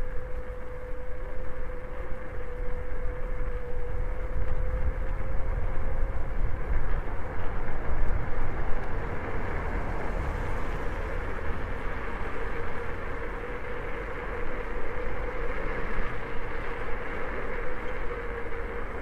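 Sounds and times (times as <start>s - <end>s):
wind buffeting microphone: 0.0s - 19.0s.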